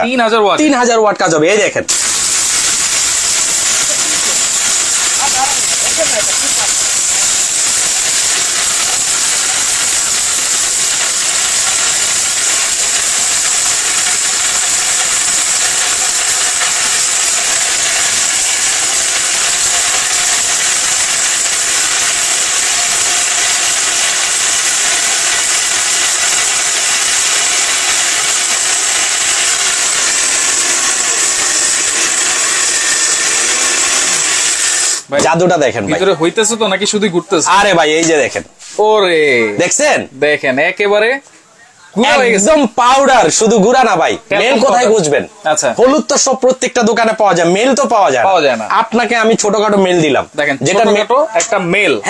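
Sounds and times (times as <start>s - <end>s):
mixer grinder motor whirring: 1.9s - 35.1s.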